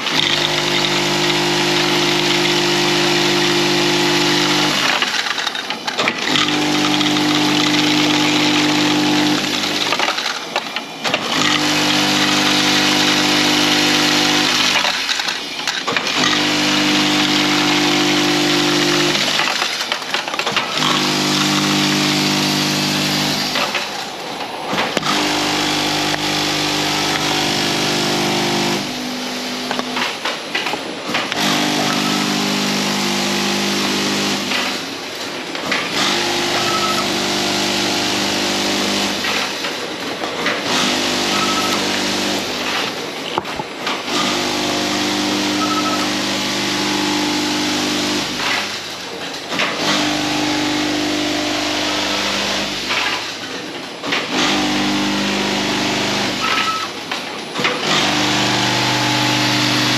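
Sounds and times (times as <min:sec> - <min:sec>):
machine motor hum: 0:00.0 - 0:59.9
short high beeps: 0:36.7 - 0:37.1, 0:41.4 - 0:41.8, 0:45.6 - 0:46.1.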